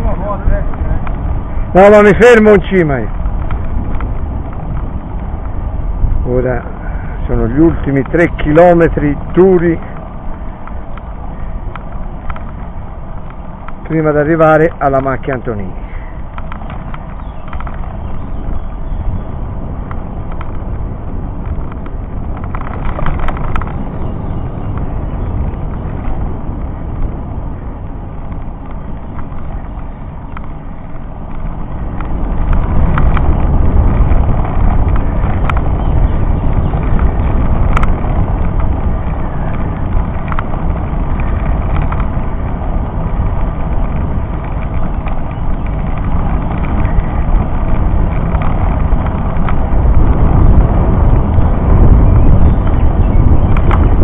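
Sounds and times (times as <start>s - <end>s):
road rumble: 0.0s - 54.0s
wind buffeting microphone: 0.0s - 54.0s
faint clicks: 9.7s - 13.9s, 15.9s - 18.0s, 36.5s - 42.2s.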